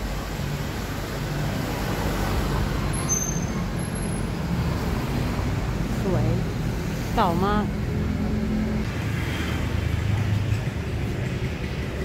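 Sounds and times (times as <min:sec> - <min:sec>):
vehicle engine rumbling: 0:00.0 - 0:12.0
brief high-pitched squeals: 0:03.0 - 0:03.6.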